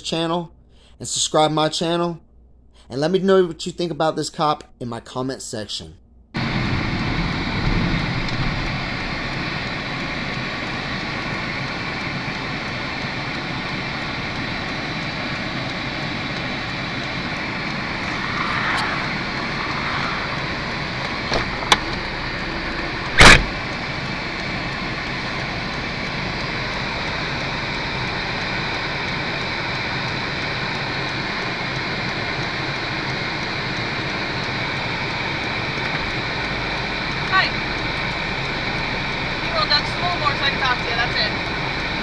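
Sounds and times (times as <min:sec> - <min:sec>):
car interior hum: 0:06.0 - 0:42.0
loud short thump: 0:23.2 - 0:23.6.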